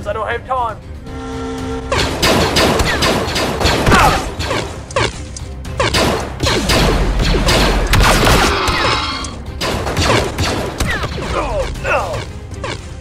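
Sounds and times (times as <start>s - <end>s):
background music: 0.0s - 13.0s
blaster shots: 5.8s - 9.0s.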